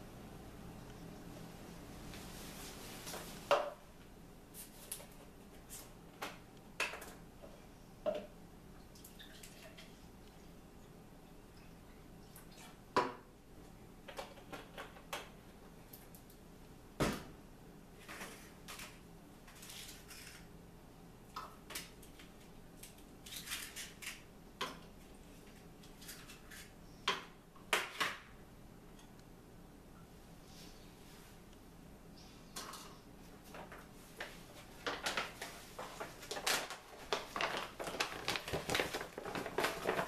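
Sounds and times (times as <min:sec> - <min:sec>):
plastic items knocking on counter: 0:34.8 - 0:40.0.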